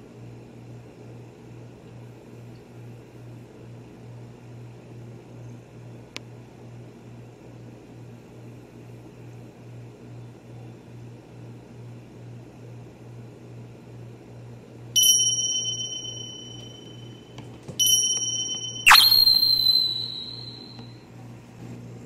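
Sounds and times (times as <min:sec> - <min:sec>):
small metal object ringing: 0:15.0 - 0:17.2, 0:17.8 - 0:20.8.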